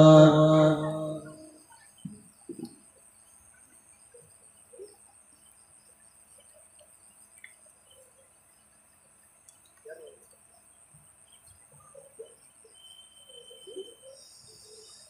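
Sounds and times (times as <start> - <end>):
person reciting: 0.0 - 1.5
faint bird chirps: 0.0 - 15.0
faint steady hiss: 0.0 - 15.0.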